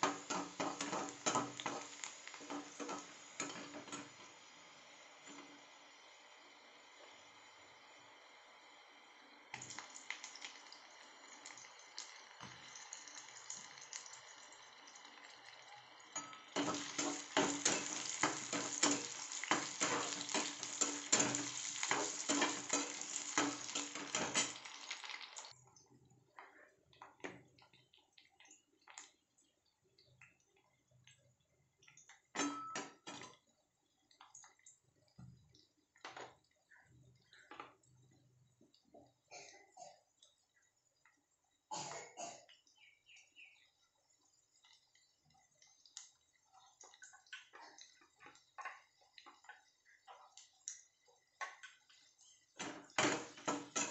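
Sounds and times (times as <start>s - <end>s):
onions sizzling in oil: 0.0s - 25.6s, 52.6s - 53.9s
metal spatula scraping pan: 16.2s - 24.7s.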